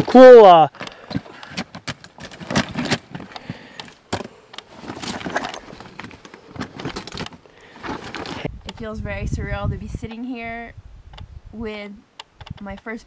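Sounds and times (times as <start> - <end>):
stones knocking: 0.7 - 8.5
clothing rustling: 1.1 - 8.5
carcass dragged over broken rock: 4.7 - 8.5.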